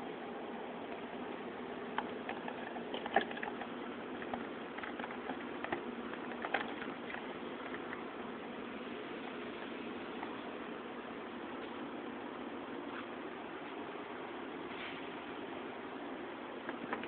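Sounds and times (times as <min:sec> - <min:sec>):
steady hiss: 0:03.6 - 0:16.8.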